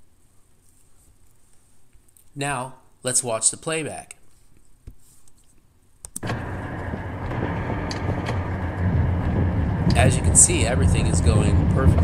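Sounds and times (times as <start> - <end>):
vehicle road noise rumble: 6.2 - 12.0.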